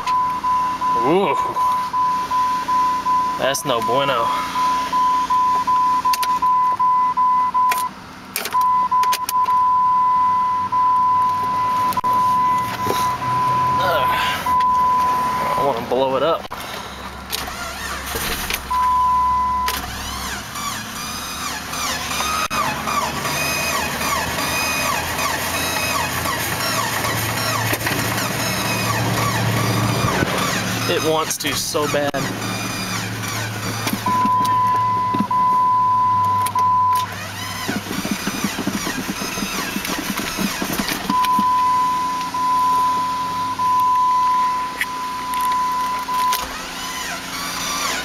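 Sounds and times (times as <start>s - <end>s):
pulsing electronic warning chime: 0.0s - 7.8s, 8.6s - 15.8s, 34.0s - 37.1s, 41.1s - 46.5s
starter motor cranking engine: 16.5s - 41.8s, 45.2s - 48.0s.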